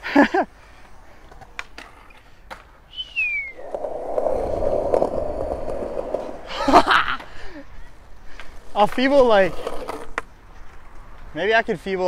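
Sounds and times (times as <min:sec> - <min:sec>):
skateboard wheels rolling on concrete: 0:00.0 - 0:12.0
short falling whistle: 0:02.9 - 0:04.5.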